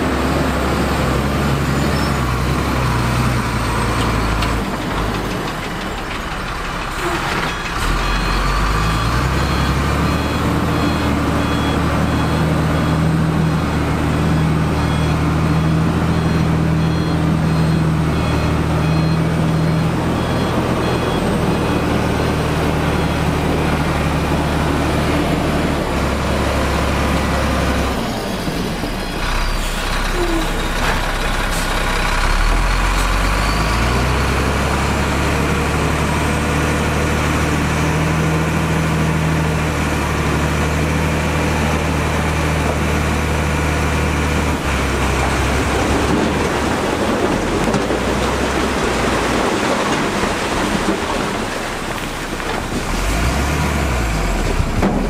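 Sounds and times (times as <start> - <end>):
heavy diesel machinery running: 0.0 - 55.0
reversing alarm beeping: 7.0 - 30.6.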